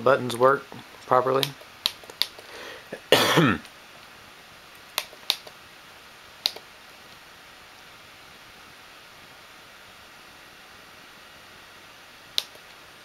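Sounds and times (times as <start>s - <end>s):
person clearing throat: 2.9s - 3.7s.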